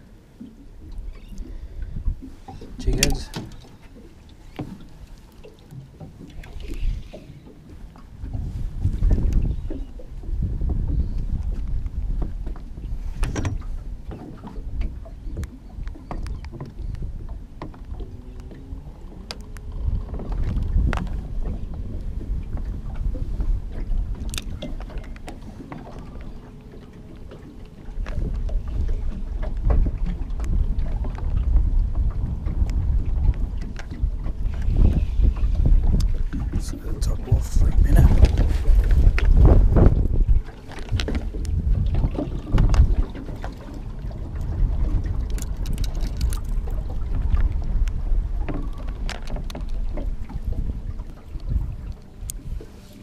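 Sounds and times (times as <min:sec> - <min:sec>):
water slapping against boat: 0:00.0 - 0:53.0
wind buffeting microphone: 0:00.0 - 0:53.0
fishing rod and reel clicks: 0:24.2 - 0:26.1, 0:45.2 - 0:46.8.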